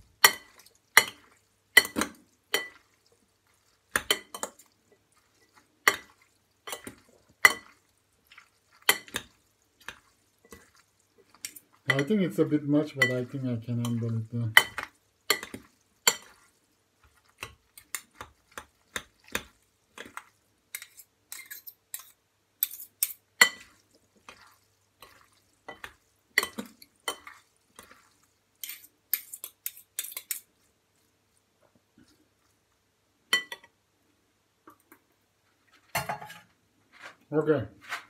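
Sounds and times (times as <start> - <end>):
utensil clinking against glass bowl: 11.5 - 12.2, 13.0 - 16.4, 25.0 - 27.4.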